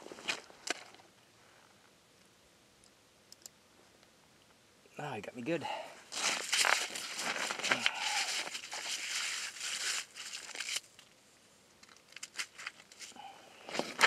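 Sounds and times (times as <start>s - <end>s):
snow crunching and rustling: 6.0s - 10.8s.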